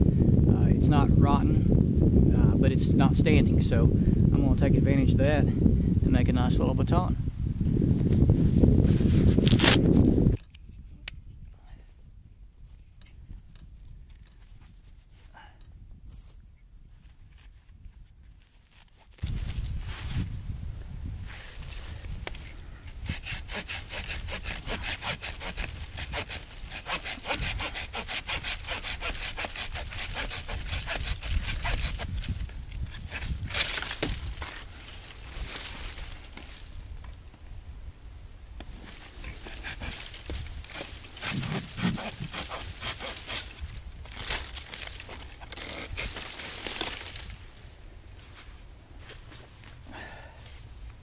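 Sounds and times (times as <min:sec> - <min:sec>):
handsaw cutting wood: 0:23.0 - 0:33.8, 0:39.0 - 0:43.6
dry leaves crunching: 0:32.0 - 0:36.8, 0:38.7 - 0:49.7.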